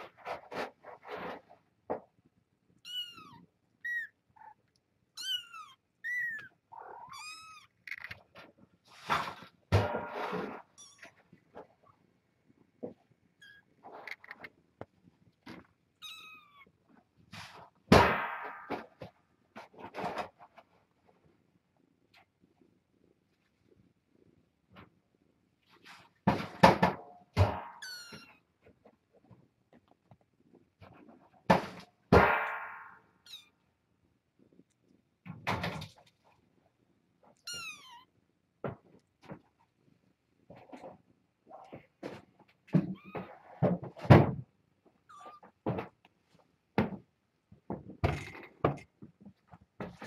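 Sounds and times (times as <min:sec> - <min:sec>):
kitten mewing: 0:05.2 - 0:08.0.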